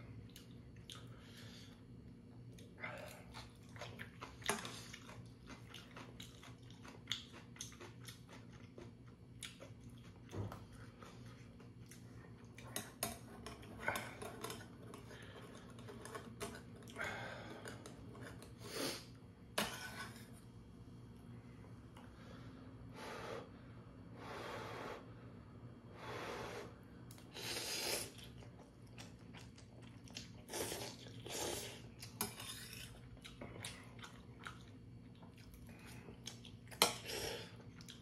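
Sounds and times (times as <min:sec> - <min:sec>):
close chewing: 0:02.6 - 0:12.7, 0:31.9 - 0:36.8.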